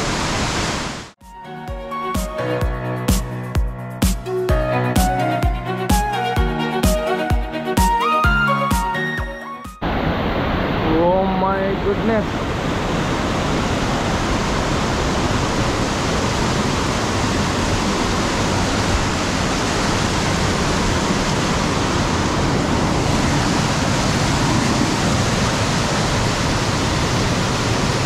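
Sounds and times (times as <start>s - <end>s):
waterfall rushing: 0.0s - 1.2s, 9.8s - 28.0s.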